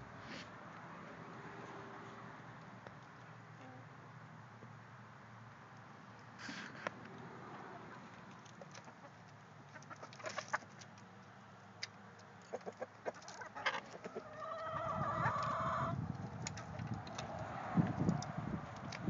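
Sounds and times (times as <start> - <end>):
chickens clucking: 7.6 - 11.0, 12.2 - 16.8.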